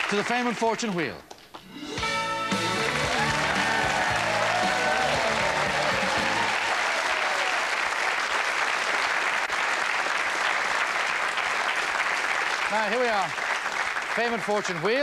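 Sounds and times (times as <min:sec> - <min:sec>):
studio audience applauding: 0:00.0 - 0:01.2, 0:02.4 - 0:15.0.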